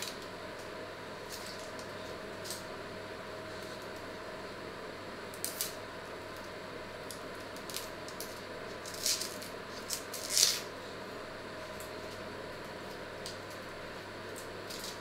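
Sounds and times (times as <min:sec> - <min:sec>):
faint steady hum: 0:00.0 - 0:15.0
knife scraping potato peel: 0:08.8 - 0:10.7.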